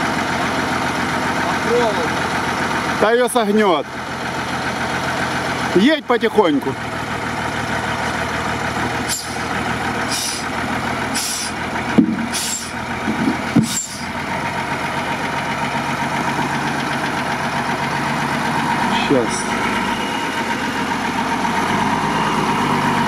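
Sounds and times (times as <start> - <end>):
truck engine running: 0.0 - 23.0
short hisses: 9.1 - 9.5, 10.1 - 10.5, 11.2 - 11.6, 12.3 - 12.8, 13.6 - 14.1
dull knocks: 11.9 - 12.4, 13.0 - 13.8.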